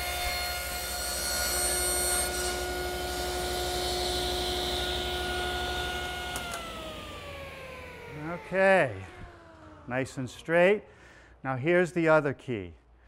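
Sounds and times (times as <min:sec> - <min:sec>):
table saw motor humming: 0:00.0 - 0:10.4.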